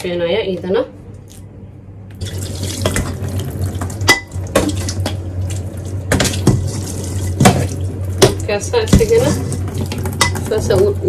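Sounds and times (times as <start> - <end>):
tap water running into metal sink: 2.1 - 10.6.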